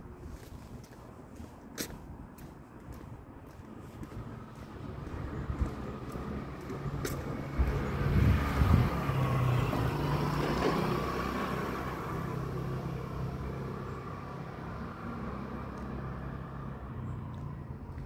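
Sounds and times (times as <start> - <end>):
car passing: 3.0 - 18.0.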